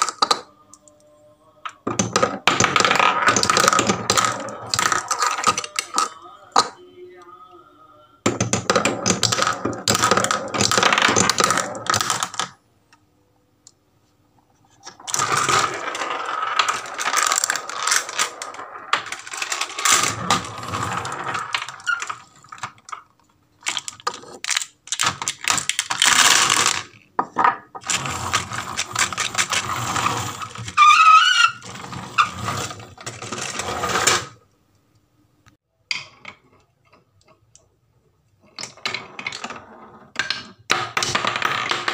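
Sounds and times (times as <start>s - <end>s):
marbles rattling down wooden run: 2.0s - 6.1s, 8.5s - 12.5s, 15.0s - 23.0s, 23.7s - 27.0s, 27.8s - 34.3s.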